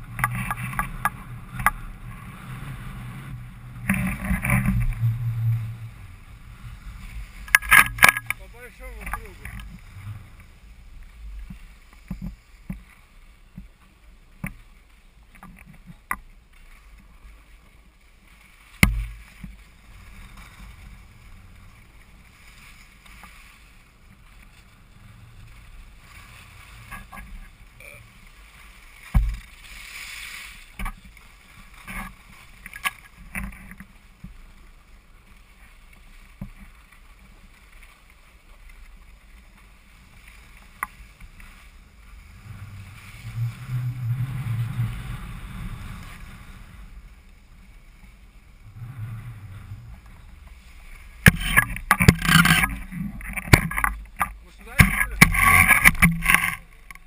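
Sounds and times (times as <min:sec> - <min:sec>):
ski knocks and clatter: 0:00.0 - 0:02.3, 0:02.9 - 0:10.5, 0:11.1 - 0:48.9, 0:49.6 - 0:57.0
skis skidding scrape: 0:00.0 - 0:56.9
skis hissing on snow: 0:29.6 - 0:30.8.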